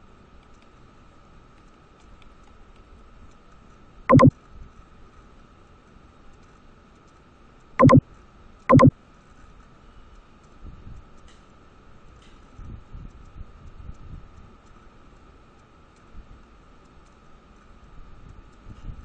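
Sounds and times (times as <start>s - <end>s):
computer mouse clicks: 4.1s - 4.3s, 7.8s - 8.0s, 8.7s - 8.9s.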